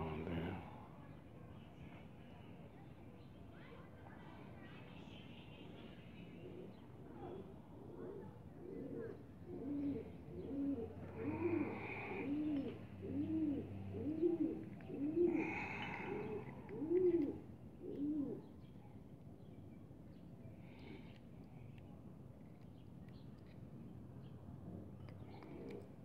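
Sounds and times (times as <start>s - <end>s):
dove cooing: 6.5s - 18.5s, 25.3s - 25.9s.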